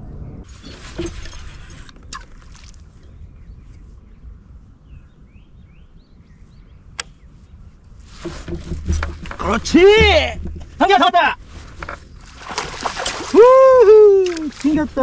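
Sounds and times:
birds chirping faintly: 0:00.0 - 0:13.4
low steady rumble: 0:00.0 - 0:14.2.

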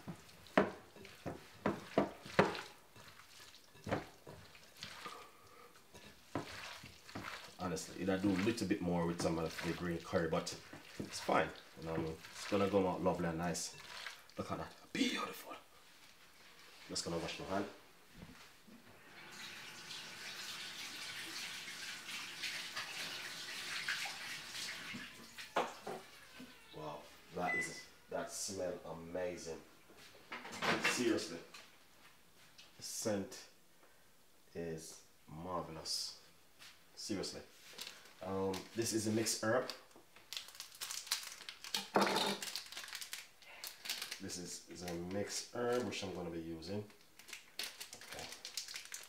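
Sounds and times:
wet squelching of hand mixing meat: 0:00.0 - 0:15.1.

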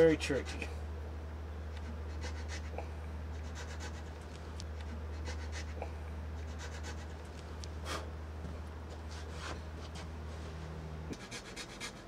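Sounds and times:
steady low hum: 0:00.0 - 0:12.0
file scratching on wood: 0:11.1 - 0:12.0.

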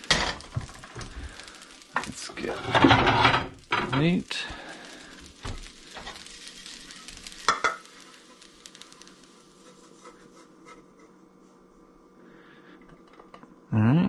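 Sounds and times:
rice sizzling in a pan: 0:00.0 - 0:12.8
spatula scraping a pan: 0:02.4 - 0:03.6, 0:05.8 - 0:11.2.

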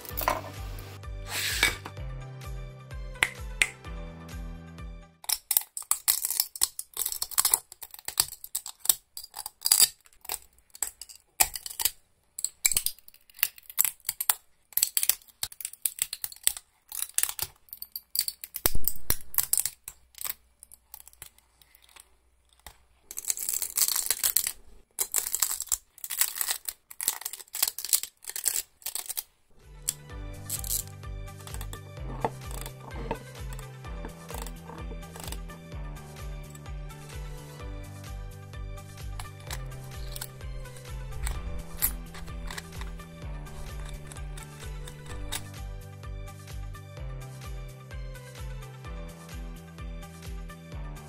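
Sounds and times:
plastic snapping and cracking: 0:05.2 - 0:35.6, 0:39.1 - 0:45.6.

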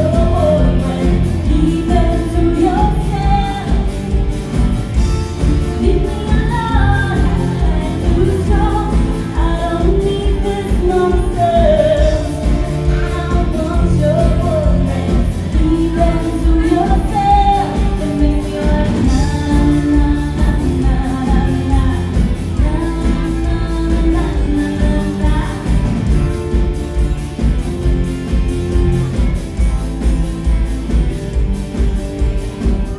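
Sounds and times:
woman singing: 0:00.0 - 0:26.4
live pop-rock band: 0:00.0 - 0:32.9.

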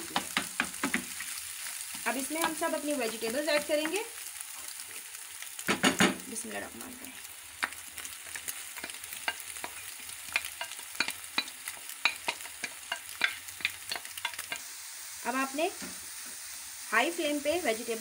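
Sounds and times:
wooden spatula knocking and scraping: 0:00.0 - 0:01.2
oil sizzling in frying pan: 0:00.0 - 0:18.0.

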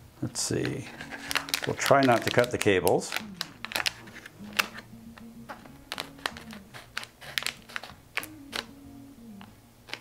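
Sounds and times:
plastic bag crinkling: 0:00.6 - 0:04.8, 0:05.5 - 0:08.7.

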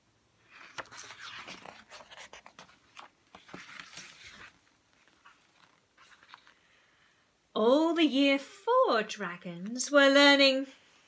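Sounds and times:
book pages rustling: 0:00.4 - 0:06.8.

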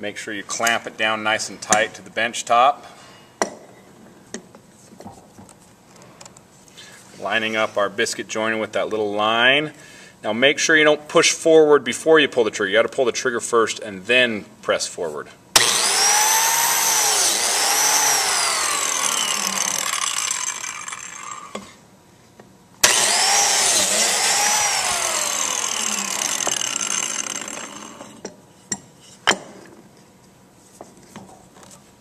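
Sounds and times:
biscuit joiner cutting and winding down: 0:15.6 - 0:21.6, 0:22.8 - 0:28.2.

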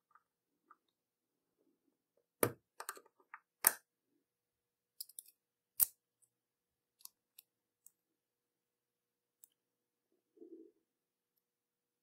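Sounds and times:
metal lock parts clicking: 0:05.0 - 0:06.0.

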